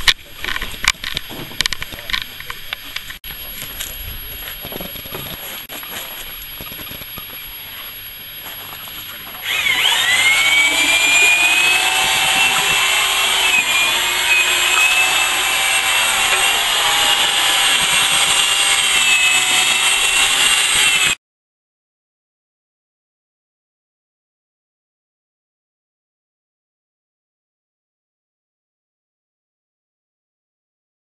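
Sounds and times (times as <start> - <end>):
power tool motor whine: 3.4 - 21.2.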